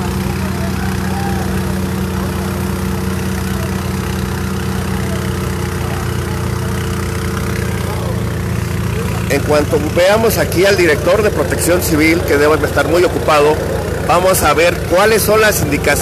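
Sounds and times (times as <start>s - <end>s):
vehicle engine idling: 0.0s - 16.0s.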